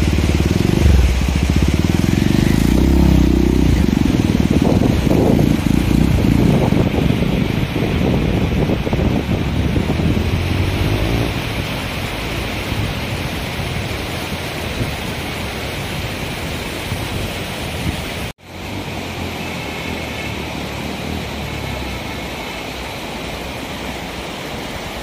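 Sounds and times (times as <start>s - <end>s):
motorcycle engine running: 0.0s - 14.3s
river rushing: 0.0s - 25.0s.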